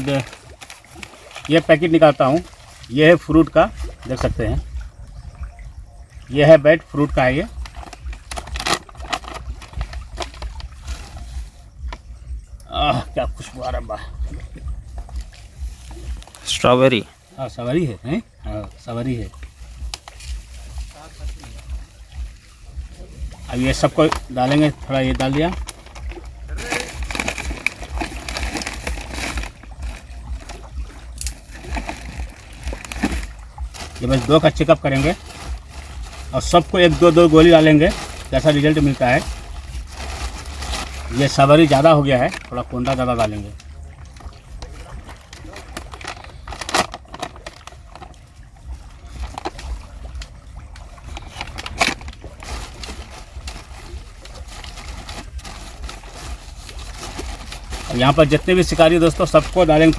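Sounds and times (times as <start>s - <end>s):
plastic bags rustling and crinkling: 0.0s - 4.4s, 7.1s - 12.1s, 18.5s - 59.9s
steady low rumble: 7.1s - 59.9s
sharp crackles: 7.2s - 12.0s, 23.5s - 59.9s.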